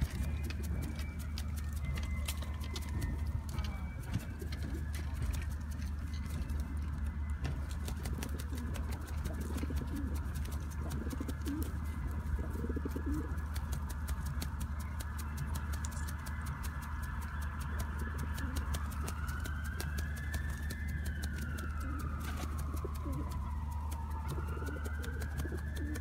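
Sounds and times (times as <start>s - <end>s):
pigeons cooing: 7.8s - 13.8s, 21.7s - 26.0s.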